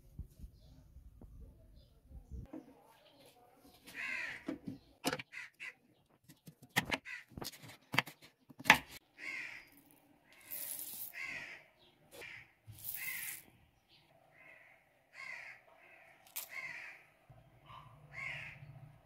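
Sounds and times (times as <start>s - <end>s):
crows cawing: 3.9s - 4.6s, 5.2s - 5.8s, 7.0s - 7.4s, 9.2s - 13.4s, 14.3s - 17.1s, 17.7s - 18.8s
seeds pouring into stone mortar: 10.4s - 11.2s, 12.7s - 13.4s.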